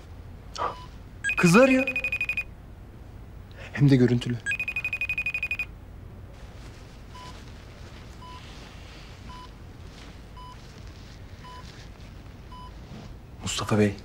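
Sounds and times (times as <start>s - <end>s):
low room hum: 0.0s - 14.0s
patient monitor beeping: 0.6s - 2.5s, 4.4s - 5.7s, 8.2s - 8.5s, 9.3s - 9.6s, 10.3s - 10.7s, 11.4s - 11.7s.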